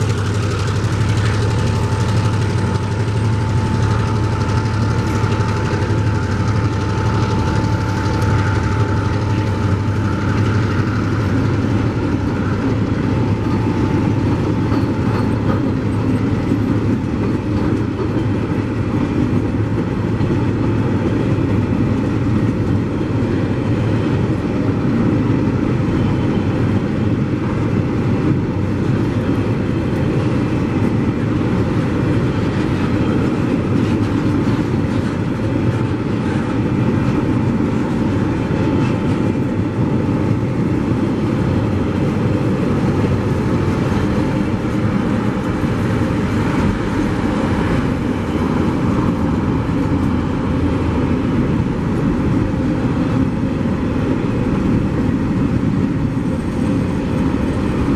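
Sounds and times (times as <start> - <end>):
train wheels rumbling on rails: 0.0 - 57.9.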